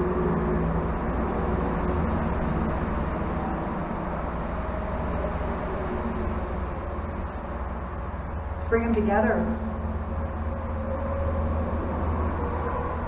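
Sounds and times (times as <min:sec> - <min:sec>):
highway traffic rumble echoing: 0:00.0 - 0:13.0.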